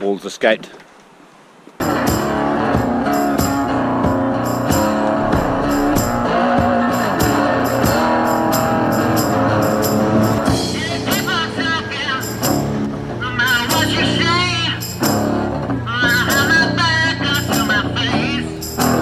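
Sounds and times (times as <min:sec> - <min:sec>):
guitar and drums music: 0:05.2 - 0:06.4.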